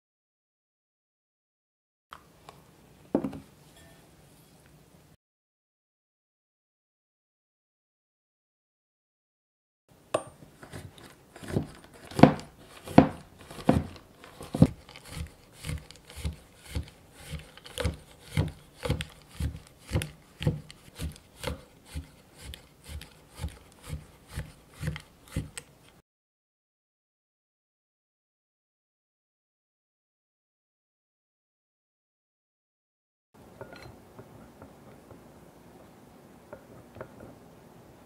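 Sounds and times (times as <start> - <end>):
knife chopping on wooden board: 10.2 - 25.6.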